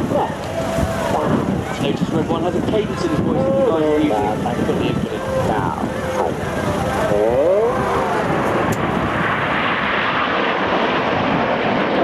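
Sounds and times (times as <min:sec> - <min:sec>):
jets flying past: 0:00.0 - 0:12.0
voice over loudspeaker: 0:01.1 - 0:07.8.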